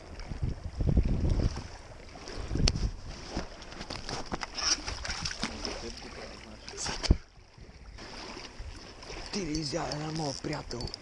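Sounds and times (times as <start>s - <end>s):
wind buffeting microphone: 0.0s - 3.6s, 6.7s - 11.0s.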